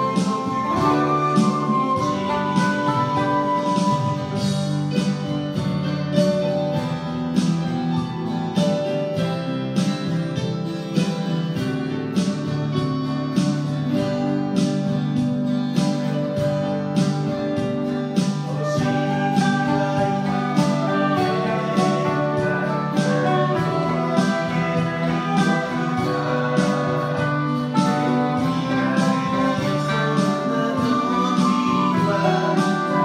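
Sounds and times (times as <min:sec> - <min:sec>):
guitar music over beat: 0:00.0 - 0:33.0.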